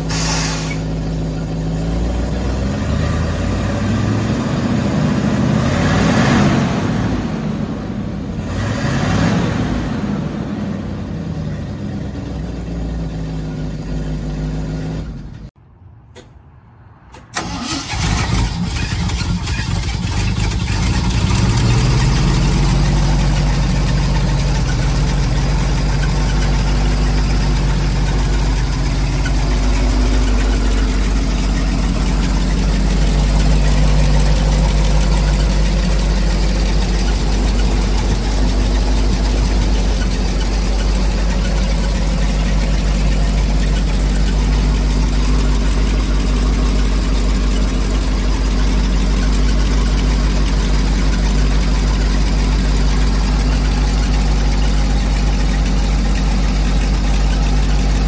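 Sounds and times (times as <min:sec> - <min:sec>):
truck engine running: 0:00.0 - 0:05.8, 0:17.4 - 0:58.0.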